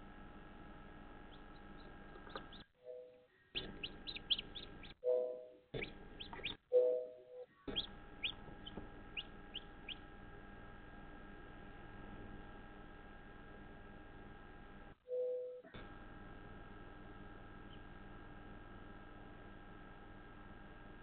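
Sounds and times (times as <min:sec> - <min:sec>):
steady hum: 0:00.0 - 0:15.0
chicks peeping: 0:01.3 - 0:02.7, 0:03.5 - 0:05.0, 0:05.8 - 0:06.6, 0:07.7 - 0:10.0
louder lower chick calls: 0:03.6 - 0:05.0, 0:05.8 - 0:06.6, 0:07.7 - 0:08.4.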